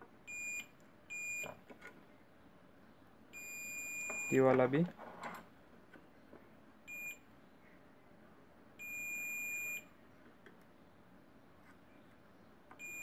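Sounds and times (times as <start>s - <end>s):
multimeter continuity beep: 0.2s - 1.6s, 3.3s - 4.5s, 6.8s - 7.3s, 8.8s - 9.9s, 12.8s - 13.0s.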